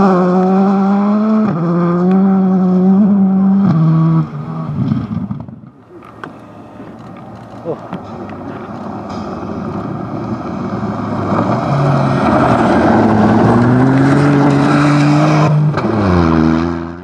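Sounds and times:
rally car engine passing: 0.0 - 17.0
gravel spraying from tyres: 6.9 - 13.7.

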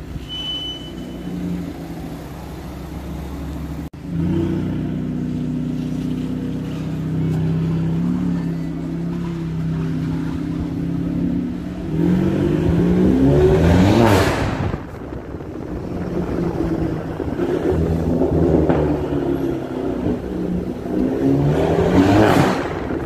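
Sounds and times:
car engine accelerating: 1.2 - 23.0.

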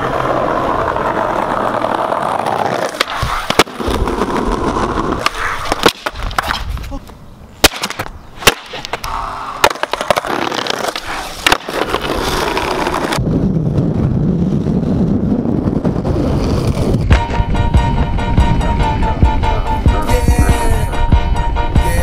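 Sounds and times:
skateboard clacks: 0.0 - 6.9, 7.6 - 13.2, 16.5 - 17.5
skateboard wheels rolling: 0.0 - 20.9.

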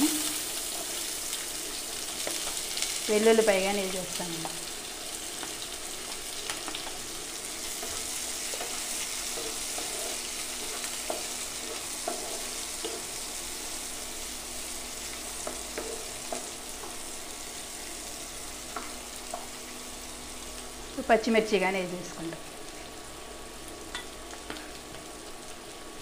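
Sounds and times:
vegetables sizzling in hot oil: 0.0 - 26.0
spatula scraping and tapping pan: 7.8 - 13.2, 15.4 - 17.0.

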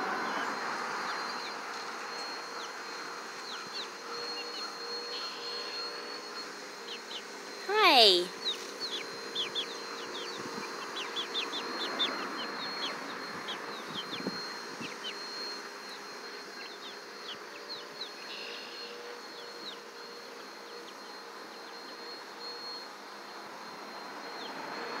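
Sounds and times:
chicks peeping: 1.0 - 4.7, 6.8 - 18.3.

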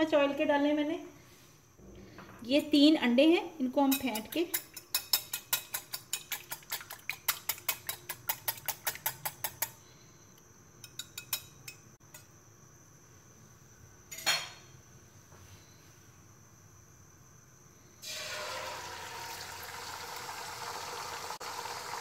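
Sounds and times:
whisk clinking against glass bowl: 3.9 - 9.7.

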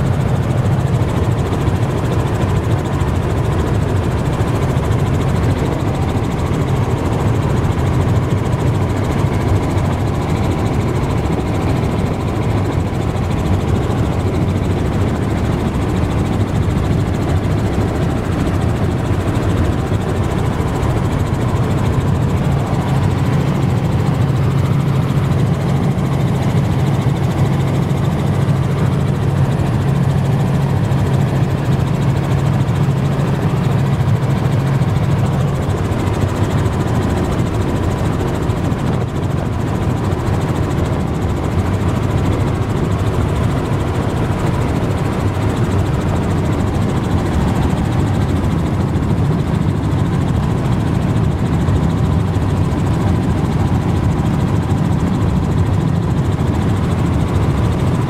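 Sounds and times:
helicopter cabin drone: 0.0 - 58.0.

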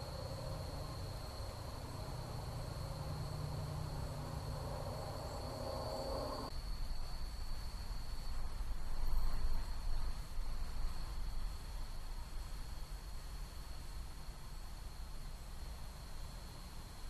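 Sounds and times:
night insects trilling: 0.0 - 10.0
microphone hiss and rumble: 0.0 - 17.0.

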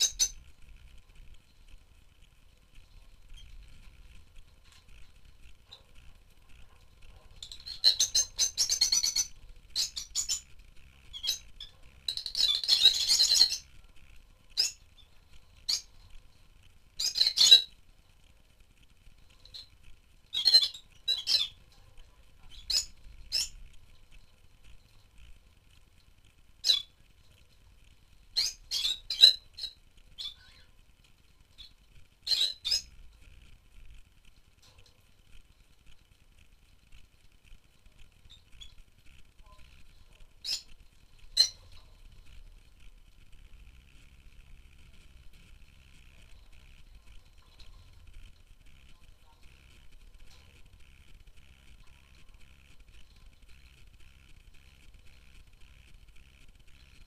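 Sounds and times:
lovebirds chirping: 0.0 - 0.5, 2.8 - 16.4, 17.0 - 17.8, 19.3 - 23.7, 26.6 - 27.0, 28.3 - 30.8, 31.5 - 33.0, 39.4 - 42.3.

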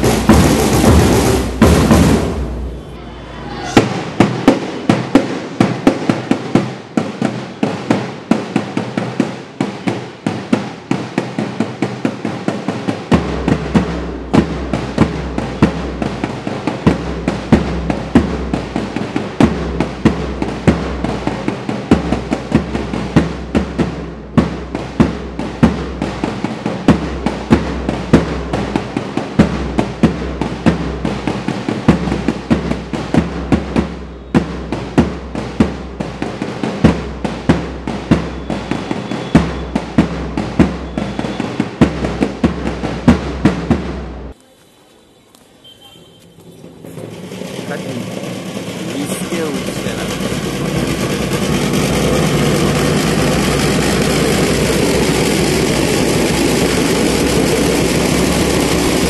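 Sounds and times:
crisp drum beat: 0.0 - 44.4, 46.4 - 59.0
march music: 0.0 - 59.0.

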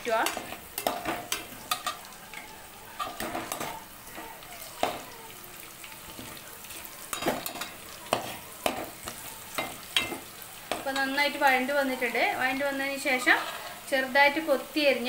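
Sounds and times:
metal spatula scraping a pan: 0.0 - 5.0, 5.9 - 11.4, 13.0 - 13.9
spices sizzling in hot oil: 0.0 - 15.0.

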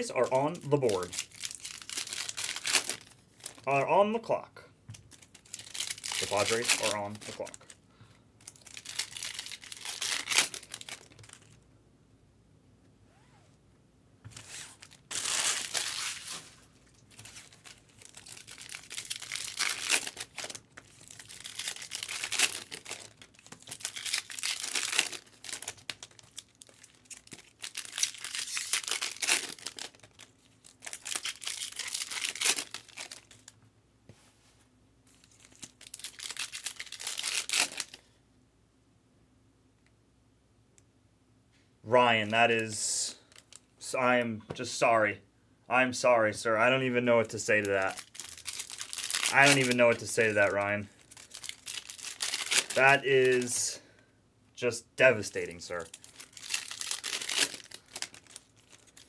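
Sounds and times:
foil wrappers tearing and crinkling: 0.0 - 3.7, 5.1 - 7.8, 8.4 - 11.6, 14.4 - 33.6, 35.1 - 38.0, 47.5 - 53.6, 55.2 - 59.0.

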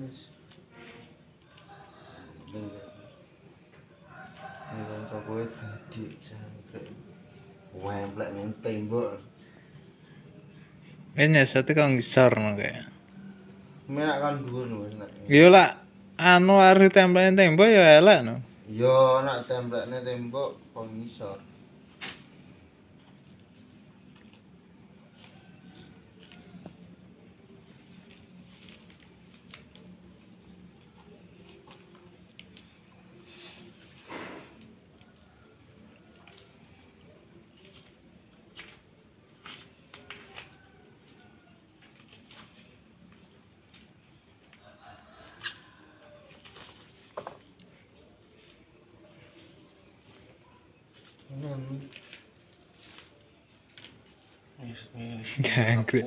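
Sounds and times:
insects chirping: 0.0 - 56.0
clicks and rustles on tarp: 27.9 - 30.0.

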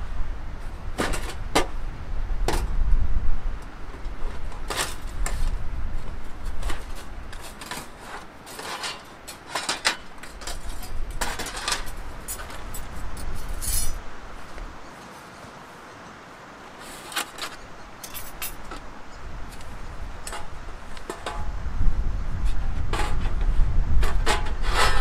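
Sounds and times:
wind rumbling on microphone: 0.0 - 25.0
steel panels clinking: 6.4 - 14.0, 19.5 - 21.6.

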